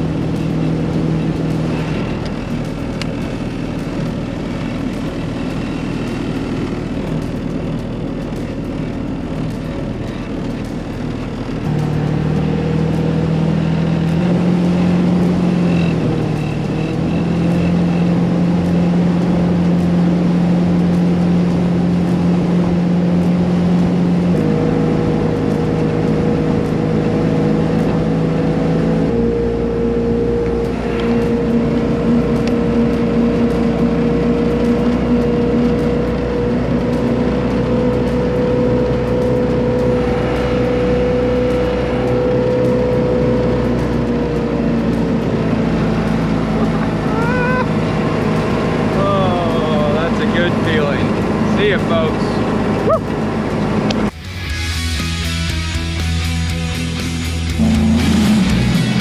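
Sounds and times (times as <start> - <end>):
boat engine running: 0.0 - 59.0
water rushing along hull: 17.6 - 54.2.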